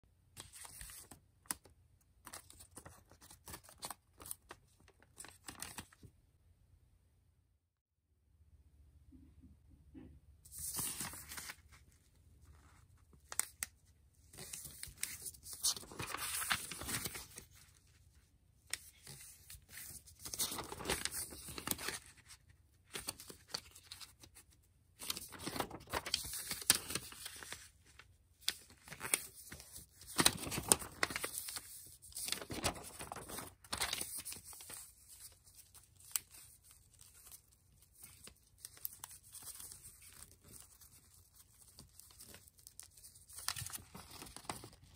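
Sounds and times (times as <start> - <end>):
paper crinkles and clicks: 0.4 - 6.1, 10.5 - 18.0, 18.7 - 44.9
paper rustling and sliding: 10.5 - 11.9, 14.3 - 17.7, 18.7 - 22.3, 25.0 - 37.4.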